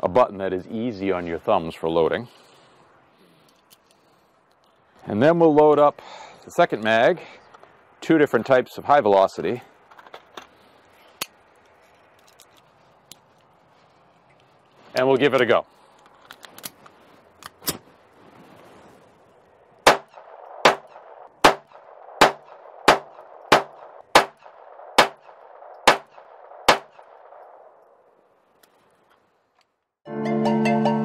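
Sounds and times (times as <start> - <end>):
pistol shots: 19.8 - 27.6.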